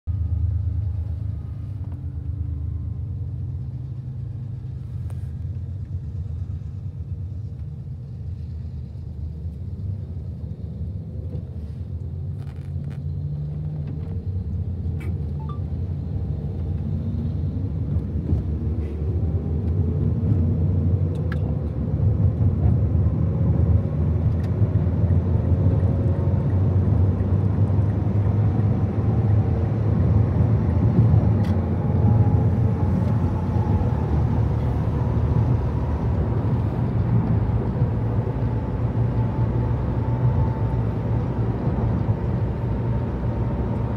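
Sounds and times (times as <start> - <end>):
car road rumble: 0.0 - 43.9
car engine accelerating: 15.9 - 43.9.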